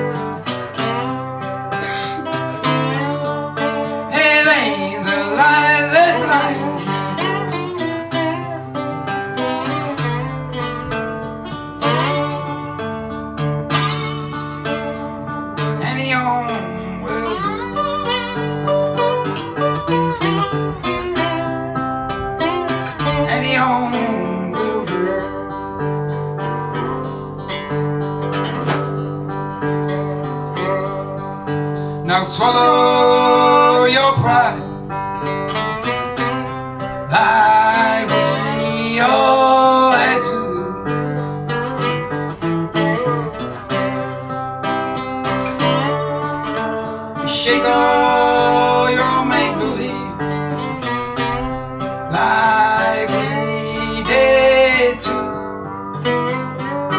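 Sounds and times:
guitar chords strummed: 0:00.0 - 0:56.9
man singing: 0:04.1 - 0:07.6, 0:15.6 - 0:17.8, 0:23.0 - 0:25.2, 0:32.0 - 0:34.7, 0:37.0 - 0:41.0, 0:47.2 - 0:50.6, 0:52.1 - 0:55.5.

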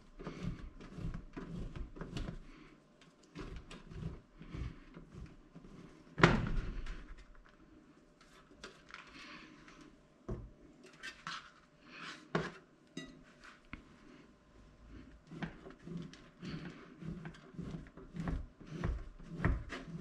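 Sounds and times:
cheese scraping on grater: 0:00.2 - 0:02.5, 0:03.4 - 0:06.0, 0:15.2 - 0:20.0.

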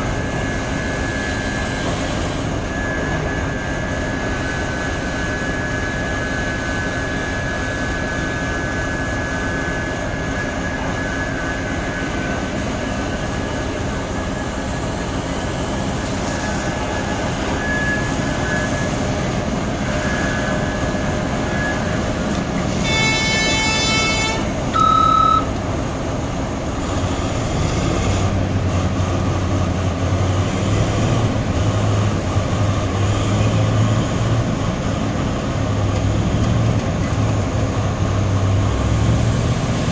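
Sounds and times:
excavator diesel engine running: 0:00.0 - 0:39.9
horn blast: 0:22.6 - 0:25.5
single-tone beep: 0:24.7 - 0:25.5.

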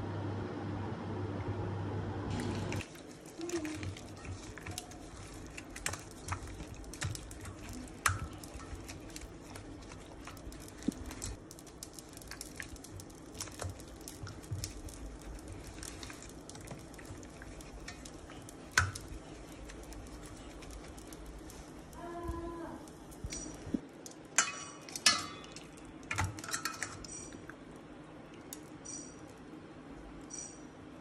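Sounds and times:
low steady hum: 0:00.0 - 0:31.0
wet squelching of raw chicken: 0:02.3 - 0:23.6.

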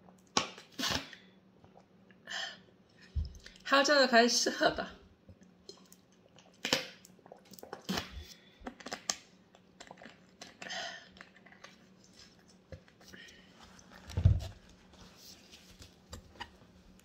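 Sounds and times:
swallowing and gulping: 0:01.6 - 0:02.2, 0:05.2 - 0:11.9.

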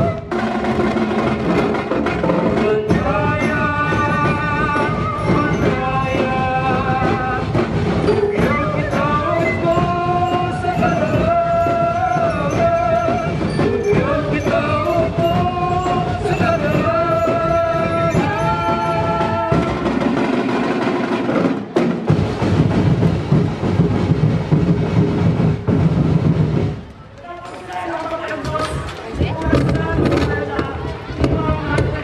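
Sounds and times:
dance music with drums: 0:00.0 - 0:26.8, 0:28.1 - 0:32.0.

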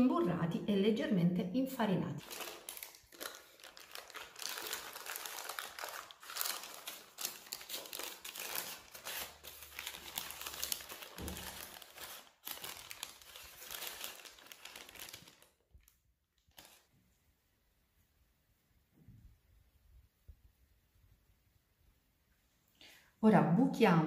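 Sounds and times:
sheet crinkling and rustling: 0:02.2 - 0:16.9.

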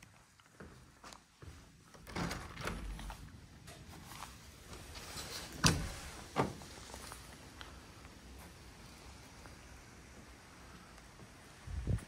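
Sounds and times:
footsteps: 0:00.0 - 0:02.0, 0:02.9 - 0:10.4
sliding glass door opening: 0:01.9 - 0:07.1.

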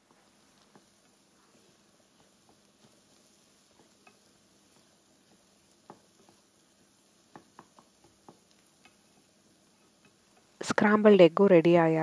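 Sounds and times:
wooden spatula tapping pan: 0:00.1 - 0:10.6.

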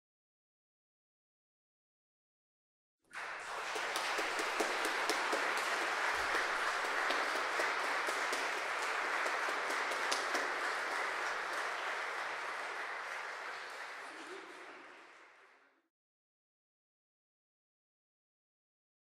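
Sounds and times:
audience clapping: 0:03.1 - 0:15.8.

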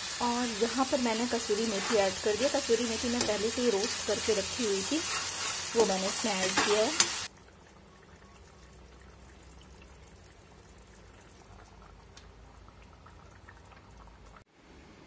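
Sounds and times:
gravy bubbling in a pan: 0:07.2 - 0:14.5.

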